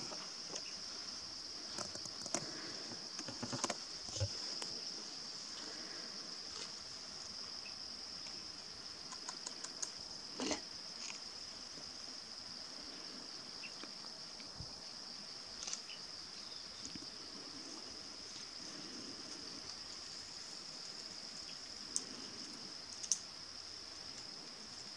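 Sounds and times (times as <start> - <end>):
grass and twigs rustling: 0.0 - 9.4.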